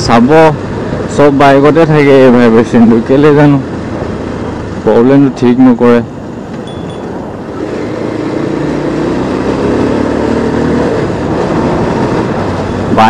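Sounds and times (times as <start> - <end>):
motorcycle engine accelerating: 6.6 - 13.0.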